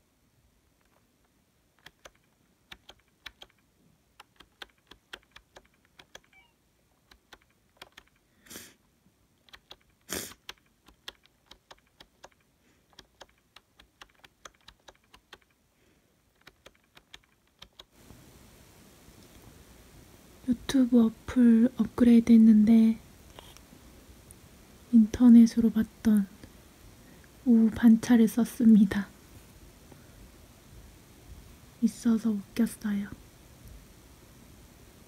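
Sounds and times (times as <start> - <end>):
keyboard key clicks: 1.8 - 3.6, 4.2 - 6.4, 16.4 - 17.9.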